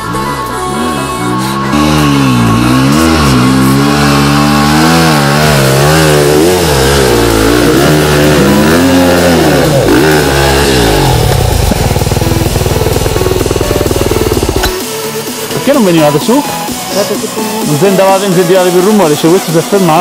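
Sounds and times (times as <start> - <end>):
dirt bike engine revving: 0.0 - 15.4.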